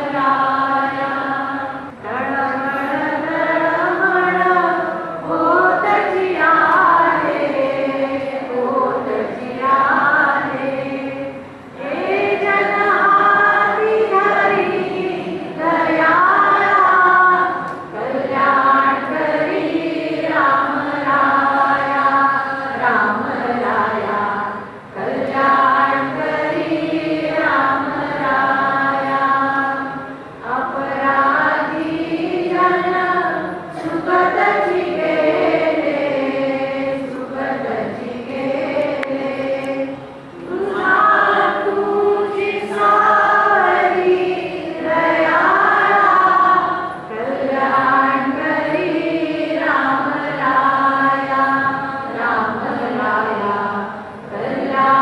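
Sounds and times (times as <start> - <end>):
group singing a prayer: 0.0 - 55.0.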